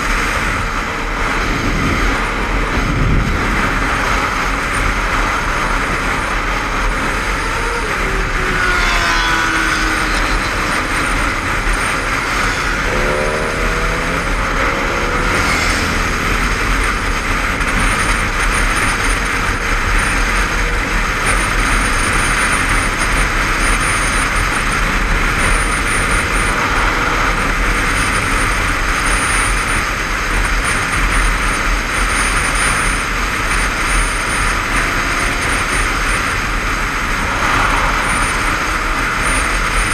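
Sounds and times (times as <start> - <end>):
wind rush: 0.0 - 21.5, 34.5 - 39.9
motorcycle engine: 0.0 - 39.9
motorcycle road noise: 0.0 - 39.9.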